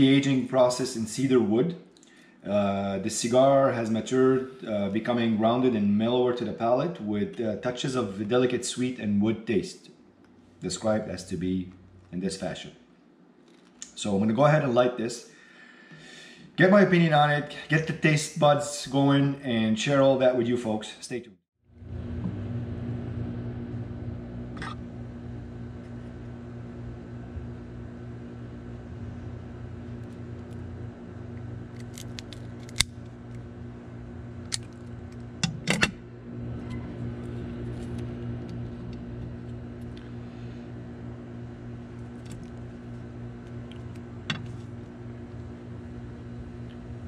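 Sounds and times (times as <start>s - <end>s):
steady low hum: 0.0s - 21.0s, 21.7s - 47.0s
cigar cutter clicks and snaps: 31.7s - 33.0s.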